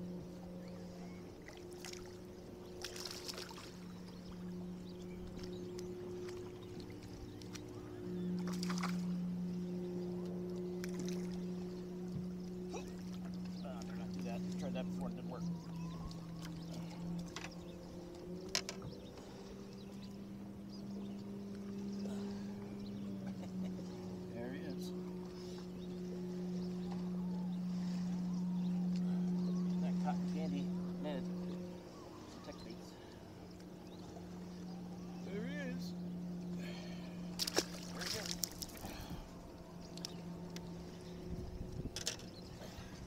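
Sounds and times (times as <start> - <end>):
electric boat motor humming: 0.0 - 43.0
fish splashing: 2.8 - 3.8, 37.4 - 39.1.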